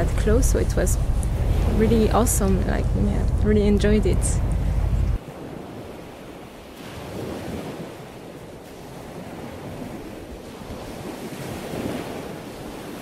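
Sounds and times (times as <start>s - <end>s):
water splashing along boat hull: 0.0s - 13.0s
wind buffeting microphone: 0.0s - 13.0s.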